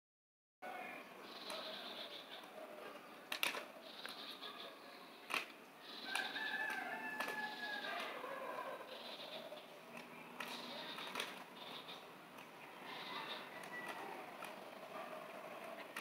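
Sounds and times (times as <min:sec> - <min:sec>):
high bird chirping: 0:01.2 - 0:02.5, 0:03.8 - 0:06.6, 0:08.8 - 0:14.3
sharp clicks: 0:05.3 - 0:07.4, 0:09.9 - 0:12.6
rooster crowing: 0:06.0 - 0:09.0, 0:13.0 - 0:14.4.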